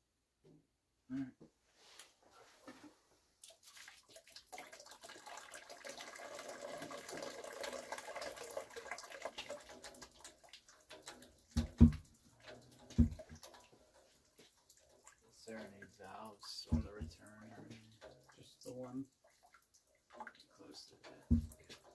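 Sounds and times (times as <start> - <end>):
water hissing through pipes: 3.5 - 14.2, 14.8 - 19.1
heavy pipe knocks: 11.6 - 12.1, 13.0 - 13.3, 21.3 - 21.6.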